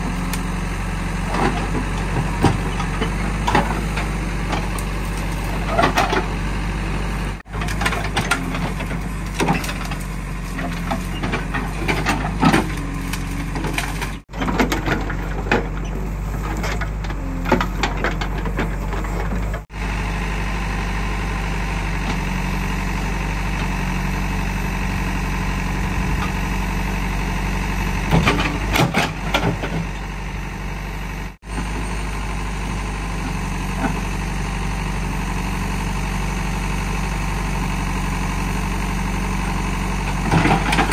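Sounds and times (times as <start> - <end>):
diesel engine running: 0.0 - 40.9
roots and wood cracking: 7.6 - 19.5.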